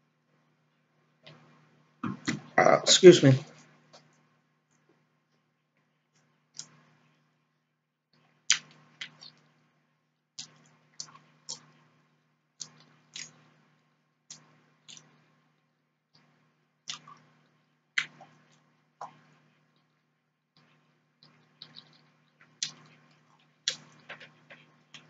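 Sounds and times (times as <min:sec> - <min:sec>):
chewing with mouth clicks: 0:08.5 - 0:09.4, 0:10.4 - 0:11.8, 0:12.6 - 0:13.4, 0:14.3 - 0:15.1, 0:16.9 - 0:17.3, 0:18.0 - 0:20.0, 0:20.6 - 0:25.0.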